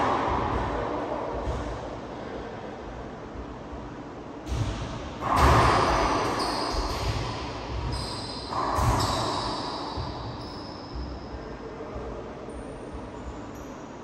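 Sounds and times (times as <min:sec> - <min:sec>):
racquetball hits echoing in court: 0:00.0 - 0:03.0, 0:04.4 - 0:11.7.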